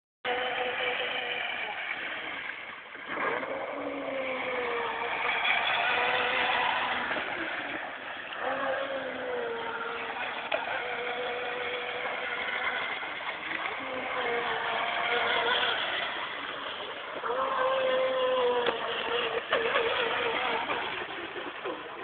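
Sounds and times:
high electric motor whine: 0.2 - 22.0.

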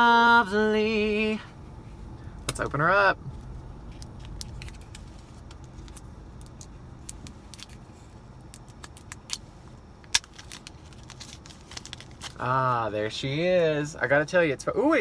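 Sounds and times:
low steady hum: 0.0 - 15.0
plastic packaging crackling: 3.8 - 12.8.

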